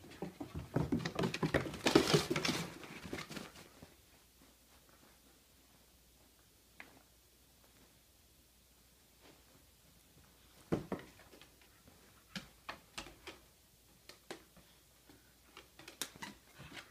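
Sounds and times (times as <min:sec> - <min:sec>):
paws tapping on wooden floor: 0:00.0 - 0:03.7.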